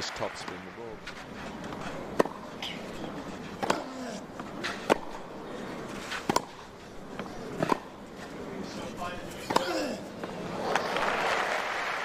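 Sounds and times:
tennis ball hit by racket: 1.6s - 2.6s, 3.5s - 4.0s, 4.6s - 5.3s, 5.9s - 8.0s, 9.4s - 9.8s.

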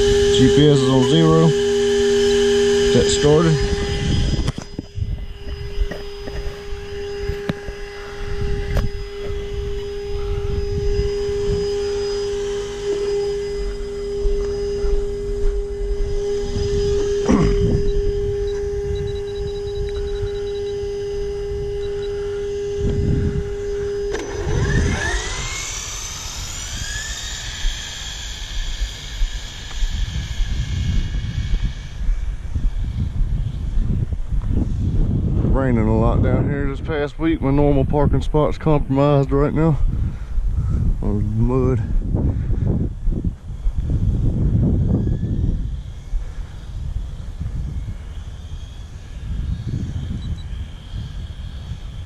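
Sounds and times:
high-pitched electronic tone: 0.0s - 32.0s, 47.2s - 52.0s
electric motor whining: 0.0s - 52.0s
wind on microphone: 0.0s - 52.0s.

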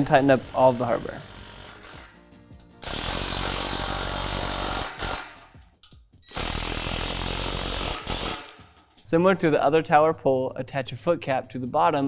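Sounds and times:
cordless drill driving bolts: 0.0s - 2.2s, 2.8s - 5.6s, 6.2s - 8.6s.

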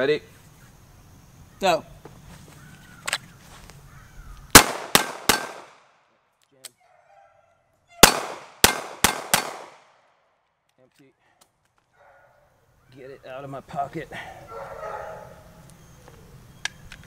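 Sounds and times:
pistol shots: 4.5s - 5.9s, 8.0s - 10.0s.

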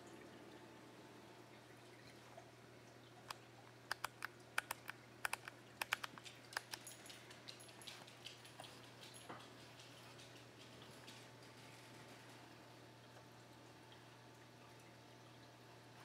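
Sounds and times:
sharp irregular clicks and taps: 3.3s - 10.4s.

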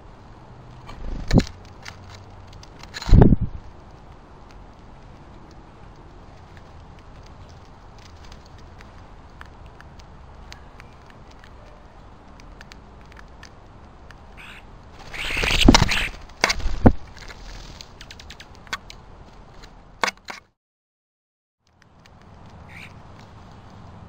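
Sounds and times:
bird wings flapping: 0.8s - 3.8s, 14.4s - 18.6s
beaks and claws clicking on metal: 0.9s - 20.5s.

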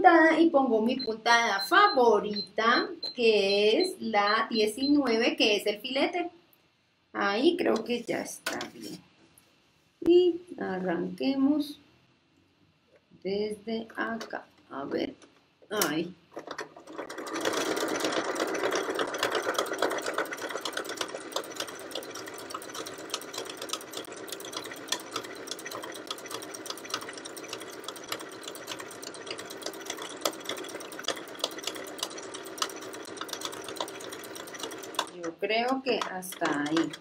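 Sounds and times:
sewing machine running: 16.4s - 37.0s.

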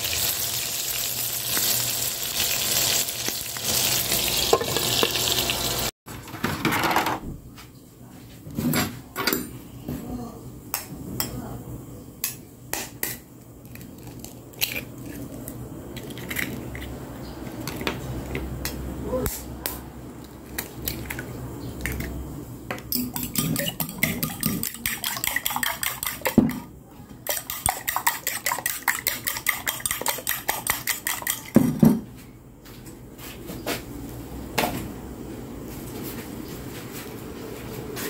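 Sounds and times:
whisk clicking against bowl: 22.9s - 26.6s, 27.2s - 31.6s
eggshell tapping on bowl: 23.0s - 26.6s.

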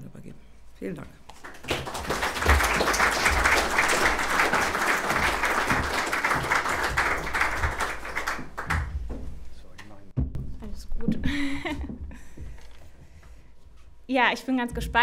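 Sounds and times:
audience applauding: 1.4s - 9.0s.

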